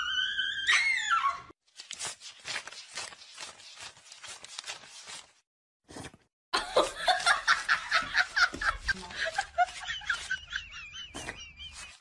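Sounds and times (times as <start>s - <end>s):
dog screaming: 0.0s - 1.5s.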